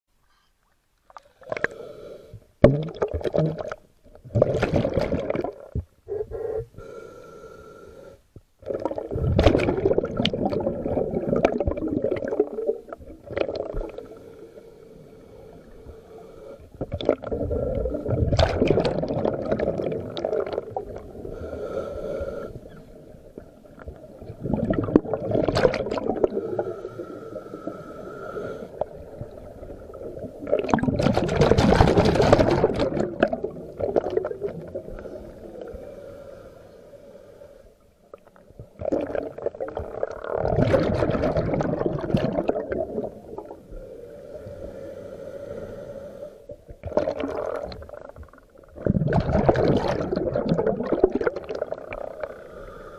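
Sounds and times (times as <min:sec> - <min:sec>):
underwater exhaled air bubbling: 0:01.1 - 0:07.0, 0:08.6 - 0:36.5, 0:38.1 - 0:52.9.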